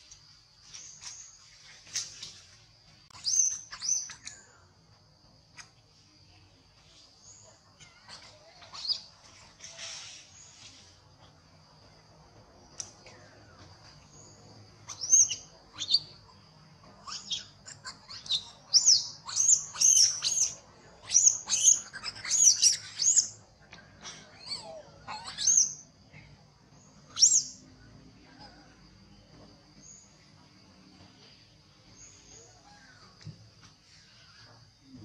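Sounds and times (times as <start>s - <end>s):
baby monkey squealing: 17.0s - 23.4s, 24.4s - 25.8s.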